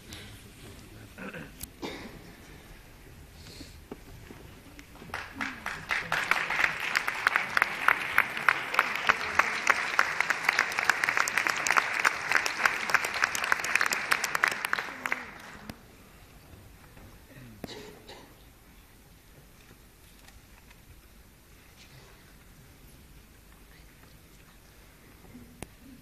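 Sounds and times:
audience applauding: 4.9s - 15.8s.

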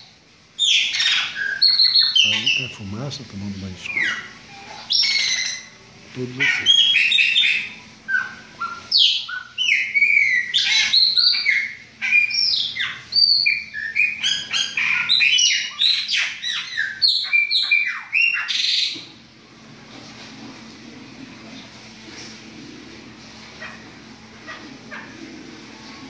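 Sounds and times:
bird singing: 0.6s - 2.8s, 3.6s - 19.0s.

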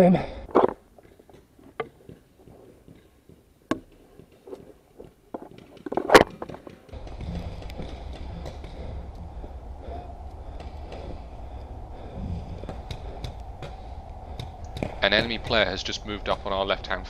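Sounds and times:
low rumble: 6.9s - 17.0s.

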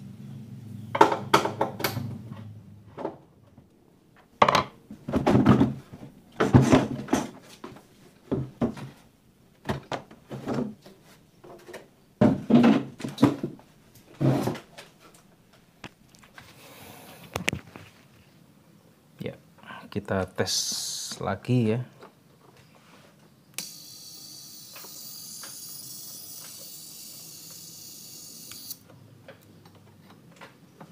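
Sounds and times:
plastic knocks and clattering: 1.0s - 14.9s.

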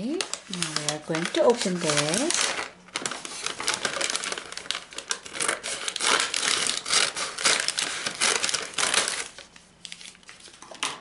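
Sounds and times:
paper bag crinkling: 0.0s - 10.6s
scissors cutting paper: 3.8s - 9.4s.

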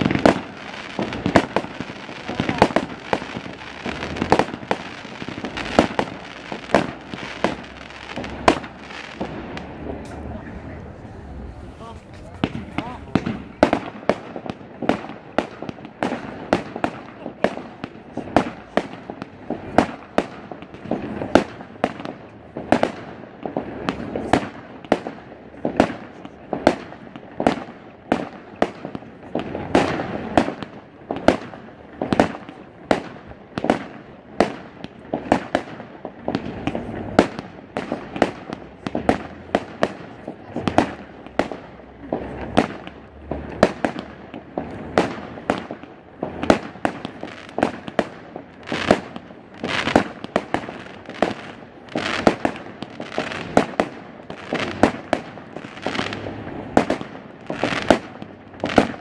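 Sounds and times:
fireworks bangs: 0.0s - 59.0s.

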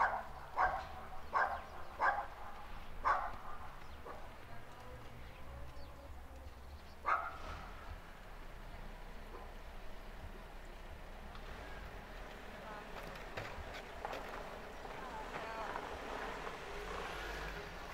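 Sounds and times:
dog barking: 0.0s - 4.3s, 7.0s - 7.5s, 9.3s - 9.6s.

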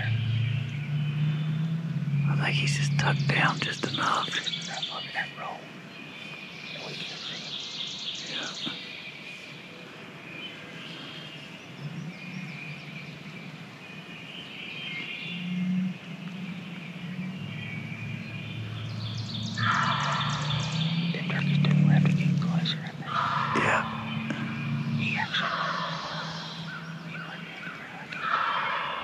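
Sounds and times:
songbirds chirping and trilling: 0.0s - 29.0s
faint low rumble: 15.0s - 28.8s.

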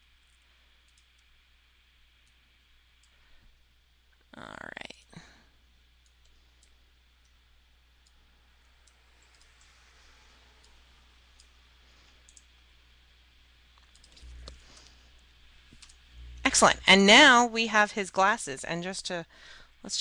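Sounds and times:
low steady hum: 0.0s - 20.0s
faint computer mouse clicks: 8.8s - 9.8s, 12.2s - 12.5s, 13.8s - 14.9s.

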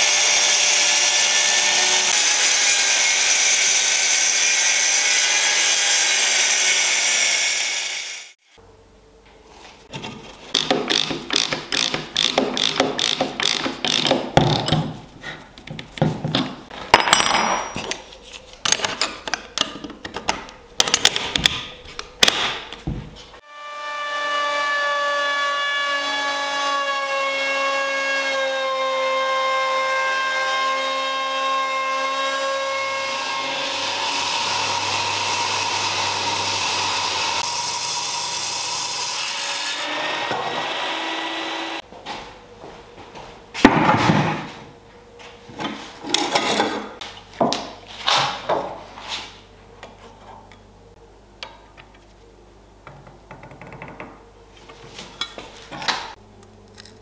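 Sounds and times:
router rasping cutting wood: 0.0s - 8.3s, 10.5s - 14.4s, 23.5s - 41.8s
router whining: 10.5s - 14.4s, 32.5s - 41.8s.

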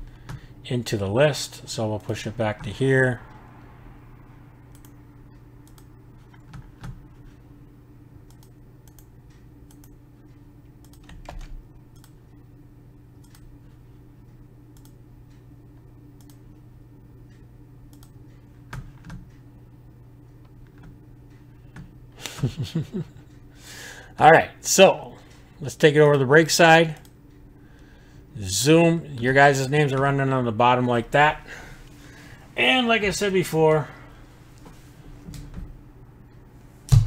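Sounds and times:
steady low hum: 0.0s - 37.0s
keyboard and mouse clicks: 4.7s - 5.0s, 5.6s - 7.0s, 8.2s - 10.0s, 10.8s - 12.2s, 13.2s - 13.5s.

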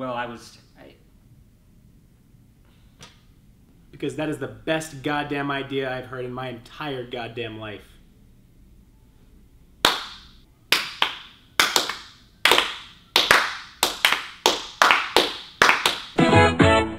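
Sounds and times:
people clapping slowly: 9.8s - 16.2s.

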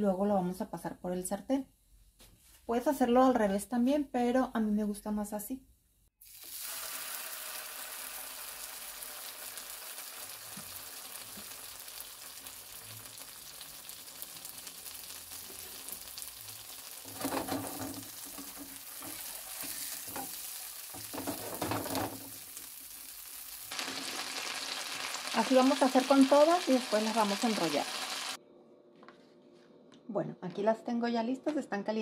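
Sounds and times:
tortilla sizzling in oil: 6.2s - 28.4s.

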